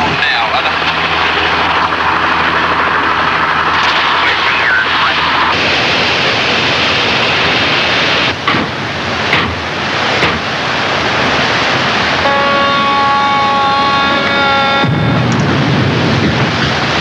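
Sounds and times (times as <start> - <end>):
sea rushing: 0.0 - 17.0
wind: 0.0 - 17.0
held chord of steady tones: 12.2 - 15.2.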